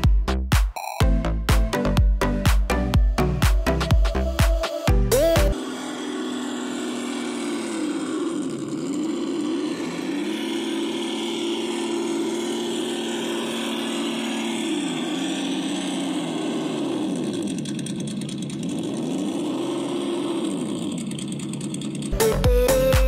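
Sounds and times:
rc car motor whining: 5.1s - 23.0s.

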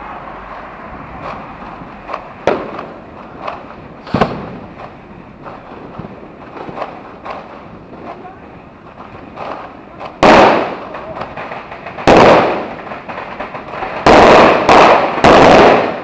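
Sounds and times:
distant firework bangs: 0.0s - 16.0s
sharp firecracker pops: 1.2s - 16.0s
loud close bangs: 2.1s - 4.8s.

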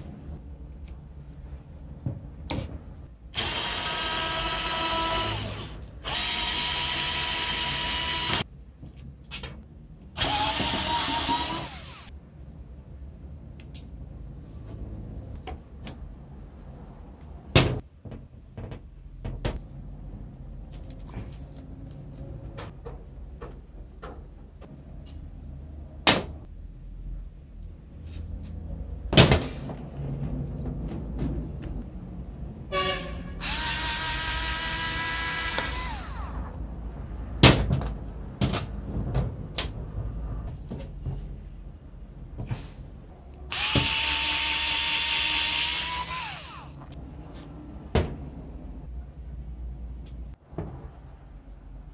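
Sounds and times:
electric screwdriver motor whining: 3.4s - 8.4s, 33.4s - 36.4s, 43.5s - 46.7s.

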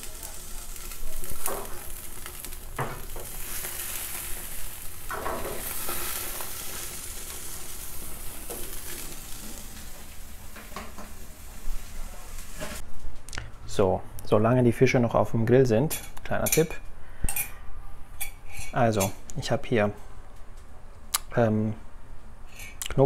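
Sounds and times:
fish sizzling on a grill: 0.0s - 12.8s.

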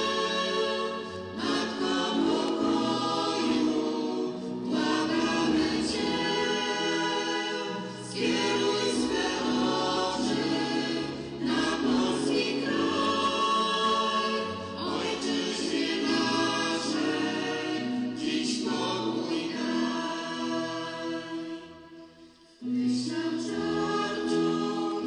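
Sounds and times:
choir singing a hymn: 0.0s - 25.0s.

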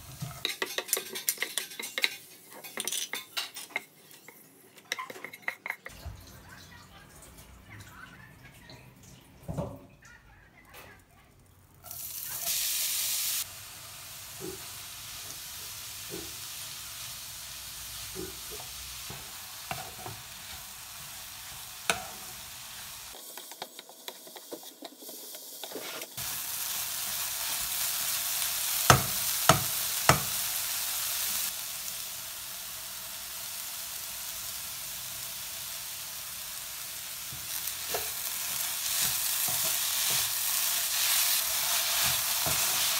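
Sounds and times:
vegetables sizzling in frying pan: 0.0s - 4.1s, 11.6s - 42.9s
spatula scraping pan: 0.1s - 5.9s, 23.3s - 26.2s.

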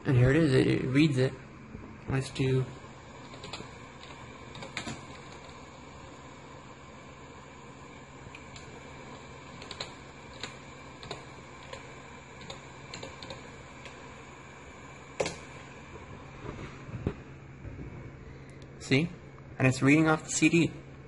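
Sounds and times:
computer humming: 0.0s - 21.0s
computer keyboard keystrokes: 3.3s - 5.5s, 9.6s - 11.8s, 12.4s - 14.0s, 15.2s - 15.4s.

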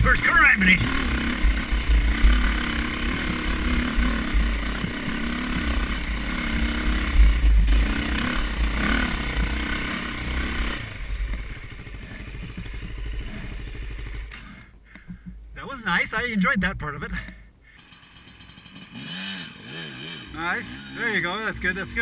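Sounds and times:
dirt bike engine revving: 0.0s - 22.0s
bike knocks and rattles: 12.3s - 13.2s.

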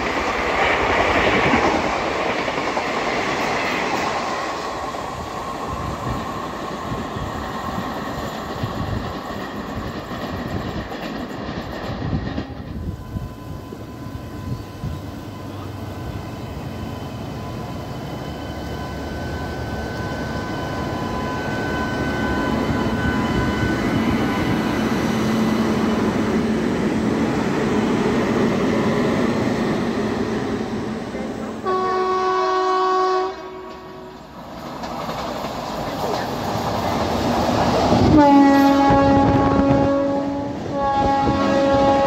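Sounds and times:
train wheels rumbling on rails: 0.0s - 42.0s
locomotive horn blast: 31.2s - 34.2s, 38.1s - 42.0s.

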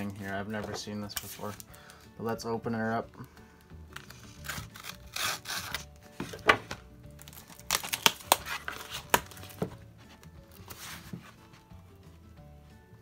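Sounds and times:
faint music: 0.0s - 13.0s
cardboard envelope tearing: 3.9s - 6.4s, 7.2s - 9.7s.

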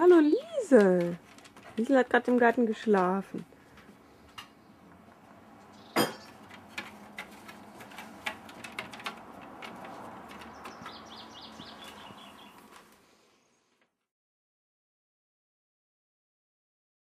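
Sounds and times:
outdoor background noise: 0.0s - 14.1s
small bird chirping: 5.7s - 6.3s, 10.3s - 12.7s.

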